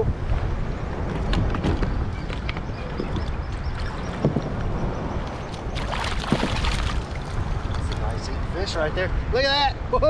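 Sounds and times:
wind buffeting microphone: 0.0s - 10.0s
water lapping against plastic hull: 1.0s - 8.1s.

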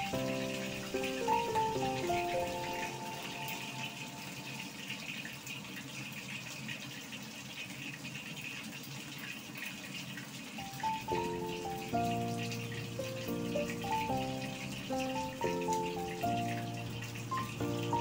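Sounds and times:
fish deep-frying in hot oil: 0.0s - 18.0s.

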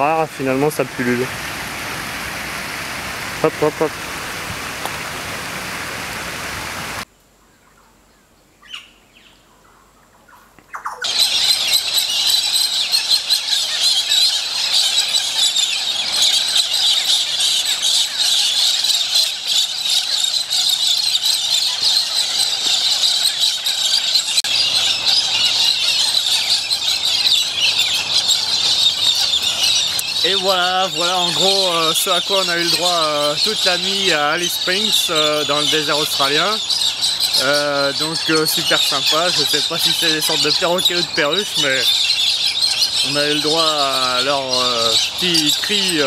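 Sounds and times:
steady hiss: 0.0s - 7.1s, 28.8s - 42.2s, 43.0s - 46.0s
faint bird chirp: 7.3s - 46.0s
birds screeching and squawking: 10.8s - 46.0s.

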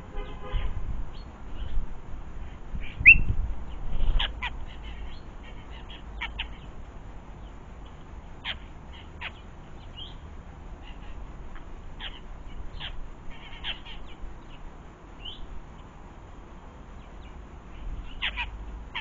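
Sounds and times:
starlings squawking and clicking: 2.4s - 16.0s, 17.0s - 19.0s.

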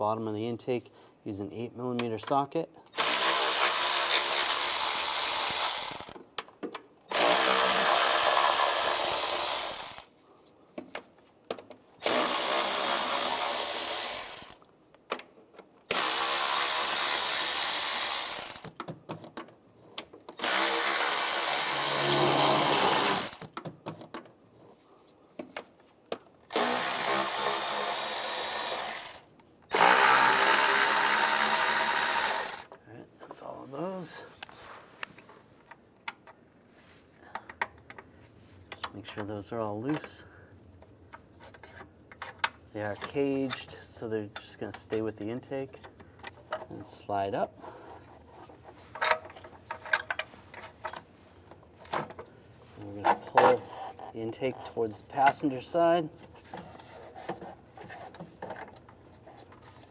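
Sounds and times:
electric ratchet spinning: 3.0s - 6.2s, 7.1s - 10.1s, 12.0s - 14.6s, 15.9s - 18.7s, 20.4s - 23.5s, 26.5s - 32.7s.

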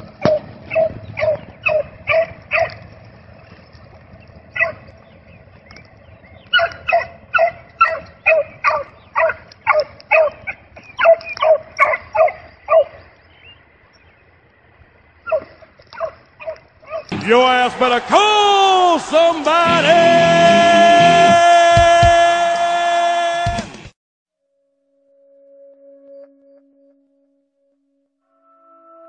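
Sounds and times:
hound barking: 0.3s - 2.8s, 4.6s - 4.9s, 6.5s - 13.0s, 15.3s - 17.2s.

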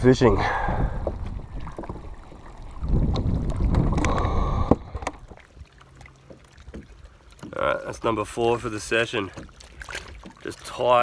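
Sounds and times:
wind buffeting microphone: 0.0s - 5.4s
water sloshing around kayak: 0.5s - 11.0s.

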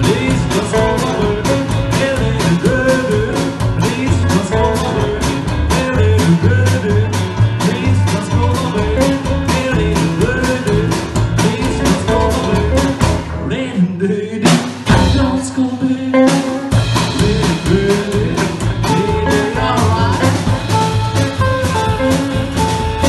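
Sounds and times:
rockabilly band with singer: 0.0s - 23.0s
accented drum hit: 14.5s - 15.4s.

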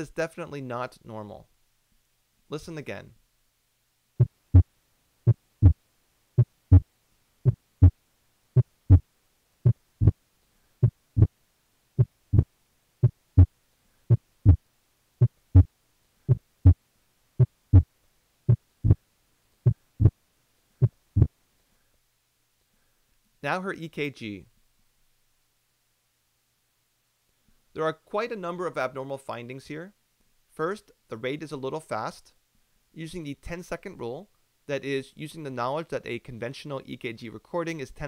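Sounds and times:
heartbeat lub-dub: 4.2s - 4.7s, 5.3s - 5.8s, 6.4s - 8.0s, 8.6s - 10.2s, 10.8s - 11.4s, 12.0s - 13.5s, 14.1s - 14.6s, 15.2s - 15.7s, 16.3s - 16.8s, 17.4s - 17.9s, 18.5s - 19.0s, 19.6s - 20.2s, 20.8s - 21.3s.

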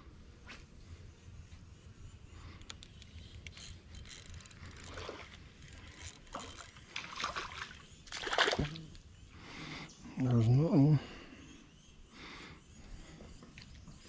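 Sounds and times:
fishing reel ticking: 2.6s - 7.1s
fish splashing: 7.0s - 8.8s.

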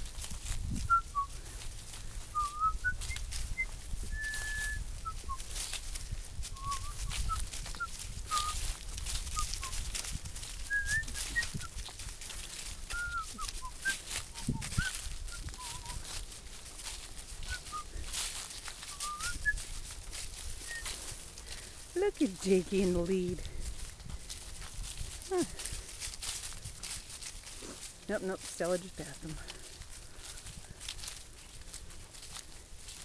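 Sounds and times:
footsteps crunching dry leaves: 0.0s - 33.0s
whistle-like note: 18.9s - 19.6s.

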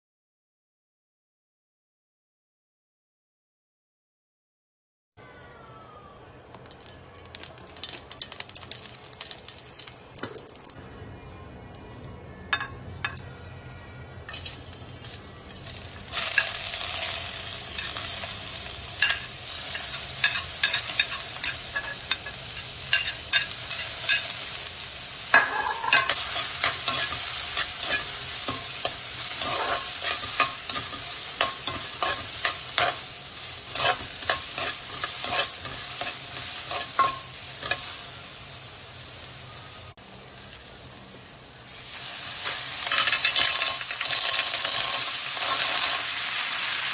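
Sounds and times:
onion sizzling in oil: 6.7s - 10.8s, 14.3s - 46.9s.

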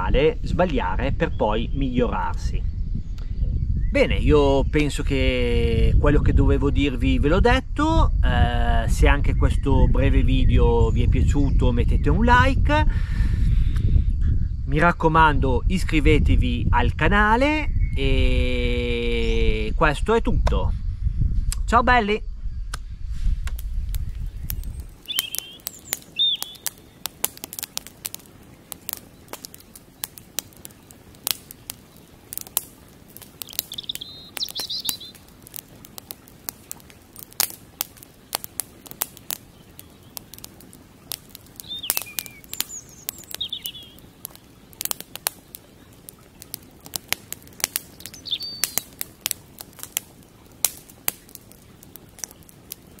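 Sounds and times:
campfire crackling and popping: 22.7s - 53.0s
bird chirps: 24.0s - 27.2s, 33.4s - 35.3s, 39.4s - 40.3s, 41.5s - 44.9s, 47.8s - 49.0s.

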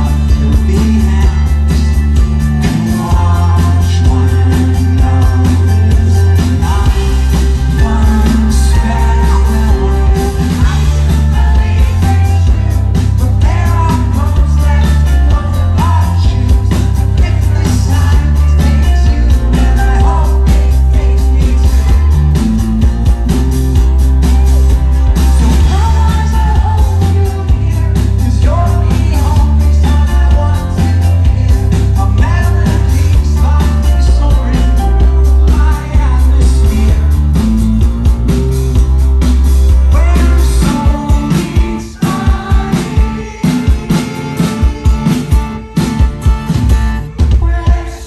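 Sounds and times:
man singing lead vocal: 0.0s - 23.0s, 24.9s - 37.7s, 39.8s - 48.0s
live rock band playing: 0.0s - 48.0s.

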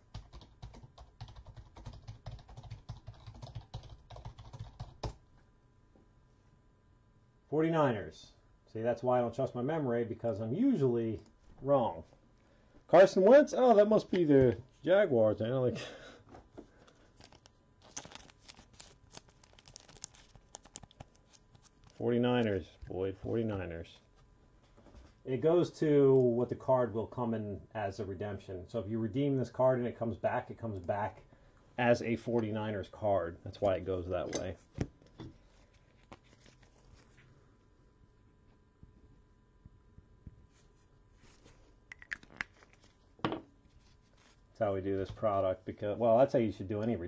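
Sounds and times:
computer keyboard typing: 0.0s - 5.2s.

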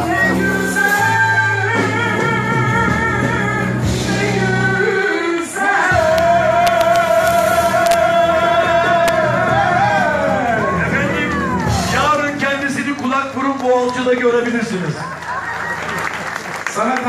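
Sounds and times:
person singing with vibrato: 0.0s - 12.4s
band playing pop music: 0.0s - 15.1s.

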